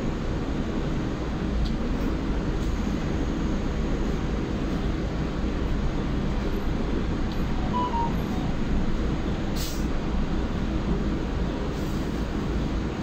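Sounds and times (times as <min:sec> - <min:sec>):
bus cabin ride rumble: 0:00.0 - 0:13.0
faint short beeps: 0:07.6 - 0:08.5
short hiss: 0:09.6 - 0:09.9.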